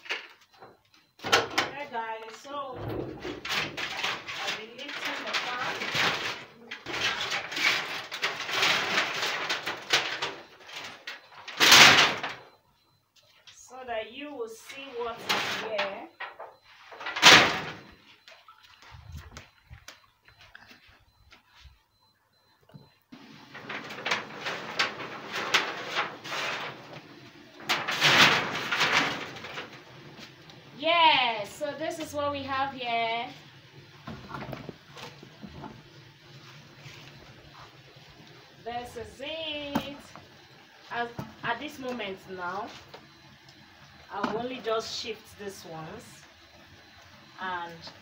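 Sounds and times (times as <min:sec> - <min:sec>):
metal roofing sheets scraping: 0:02.7 - 0:12.4, 0:15.0 - 0:16.0, 0:23.2 - 0:30.4.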